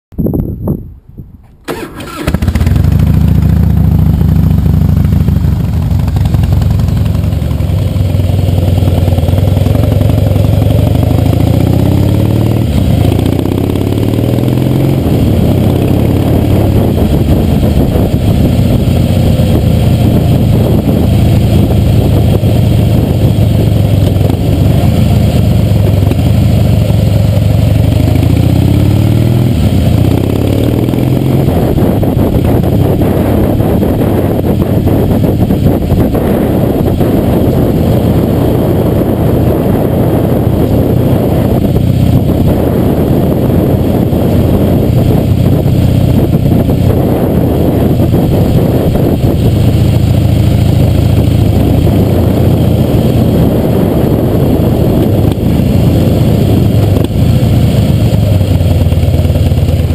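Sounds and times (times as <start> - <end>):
motorcycle engine starting: 1.4 - 59.9
motorcycle revving through gears: 1.7 - 59.9.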